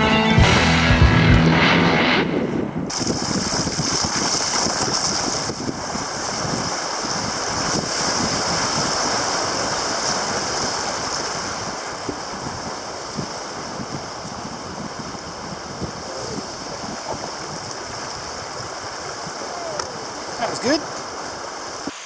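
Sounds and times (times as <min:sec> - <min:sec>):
wind on microphone: 0:00.0 - 0:22.0
water splashing against kayak hull: 0:02.9 - 0:22.0.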